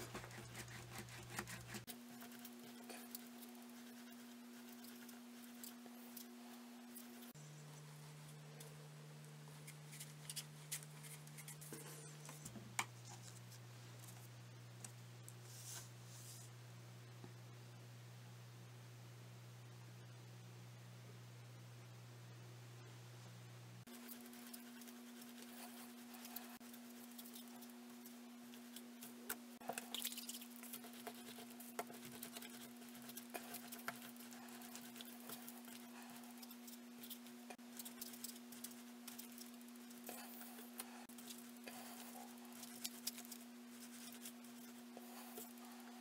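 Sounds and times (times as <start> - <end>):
hands rolling clay on paper: 0.0 - 7.4, 23.9 - 46.0
steady electrical hum: 0.0 - 46.0.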